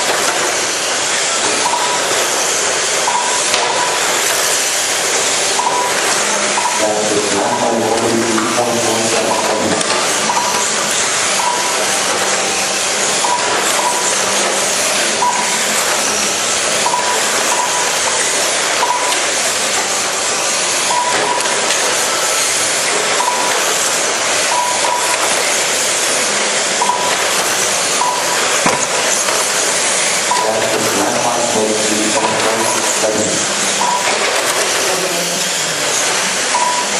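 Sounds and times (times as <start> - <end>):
rc car motors and tyres hissing: 0.0 - 6.6, 31.4 - 36.6
short high beeps: 3.1 - 3.9, 5.6 - 6.9, 9.2 - 10.7, 11.4 - 11.8, 15.2 - 15.6, 16.8 - 17.9, 18.8 - 19.3, 20.9 - 21.5, 23.2 - 23.6, 24.5 - 25.2, 26.8 - 27.2, 28.0 - 28.4, 30.3 - 30.7, 33.8 - 34.2, 36.5 - 36.9.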